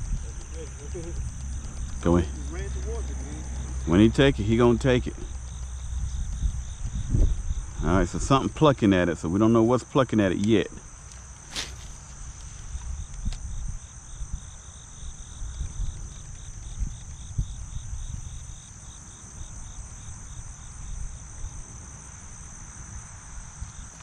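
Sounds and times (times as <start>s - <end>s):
low irregular rumble: 0.0s - 8.5s
insect high trill: 0.0s - 15.4s
insect pulsing chirp: 0.0s - 24.0s.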